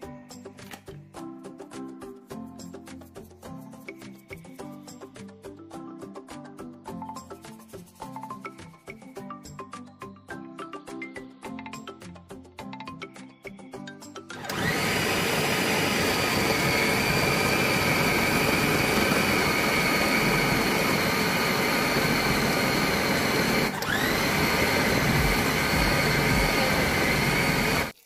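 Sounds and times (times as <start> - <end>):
electric mixer motor whining: 14.4 - 28.0.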